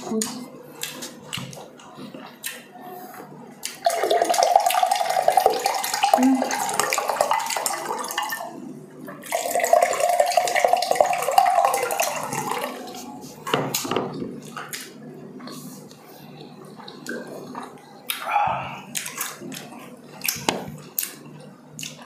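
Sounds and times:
juice pouring into a glass: 3.8 - 8.5, 9.2 - 12.8.

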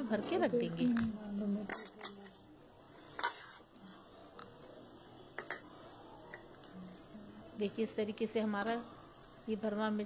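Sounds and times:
spoon scraping steel bowl: 3.0 - 4.1.

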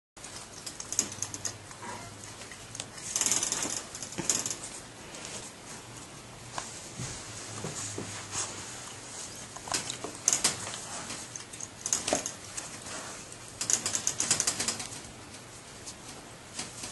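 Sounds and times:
wire crate rattling: 3.1 - 4.8, 9.7 - 12.6
rustling on bedding: 4.7 - 9.5.

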